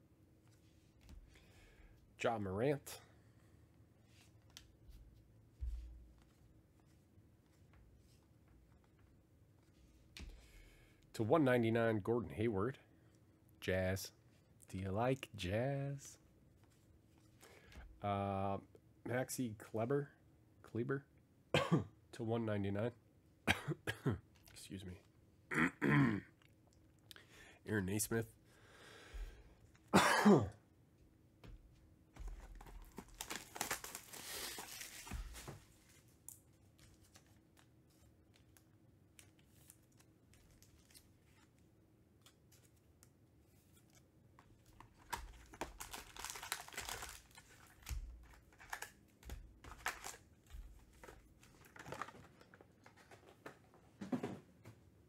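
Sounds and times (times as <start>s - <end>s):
plastic wrapping tearing and crinkling: 32.5s - 35.5s, 44.7s - 52.2s.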